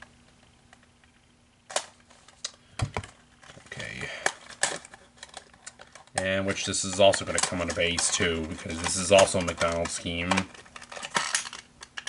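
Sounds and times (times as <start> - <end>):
packaging clicks and rustles: 1.7 - 12.0.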